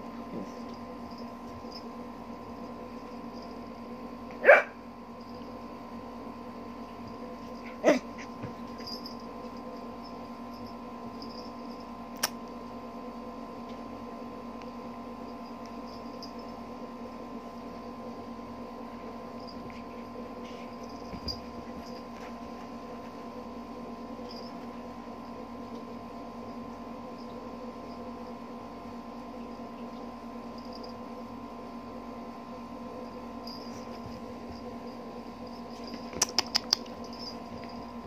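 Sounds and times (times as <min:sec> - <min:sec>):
steady electrical hum: 0:00.0 - 0:38.0
sharp click: 0:12.2 - 0:12.4.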